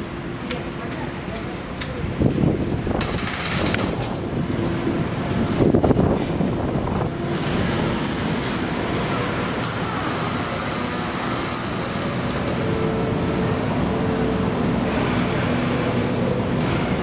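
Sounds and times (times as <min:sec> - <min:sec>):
busy station rumbling background: 0:00.0 - 0:17.0.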